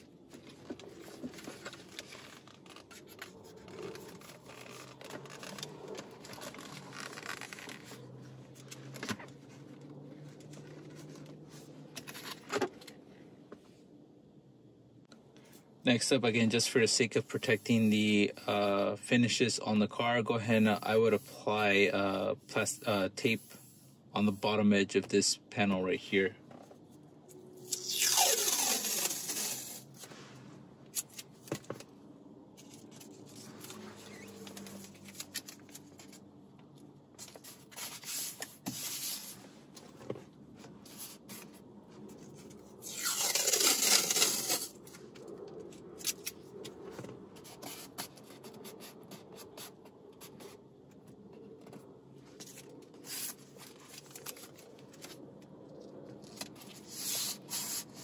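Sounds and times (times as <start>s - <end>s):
tape ripping off roll: 0.9s - 8.1s, 27.7s - 30.0s, 42.8s - 44.9s.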